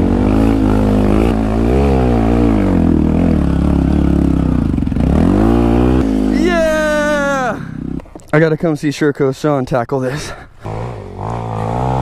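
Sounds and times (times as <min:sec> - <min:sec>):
motorcycle engine revving: 0:00.0 - 0:08.1, 0:10.6 - 0:12.0.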